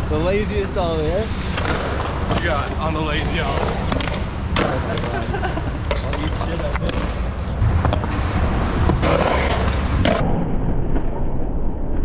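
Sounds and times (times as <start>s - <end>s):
skateboard wheels rolling on concrete: 0.0s - 10.2s
skateboard clacks: 1.4s - 8.2s
loud rough noise: 6.5s - 11.2s.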